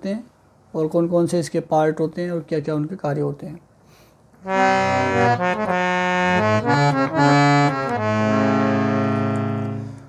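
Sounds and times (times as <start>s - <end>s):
harmonium playing: 4.4s - 10.0s.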